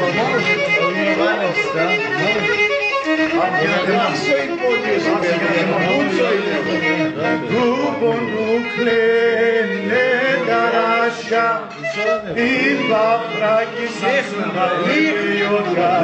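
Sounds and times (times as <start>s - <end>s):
man singing: 3.7s - 16.0s.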